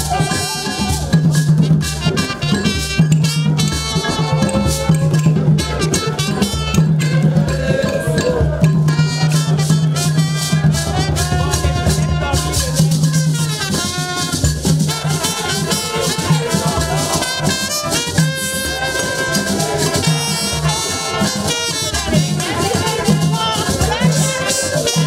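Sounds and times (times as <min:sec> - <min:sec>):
group singing: 0:00.0 - 0:01.4, 0:03.4 - 0:25.0
hand drum: 0:00.0 - 0:25.0.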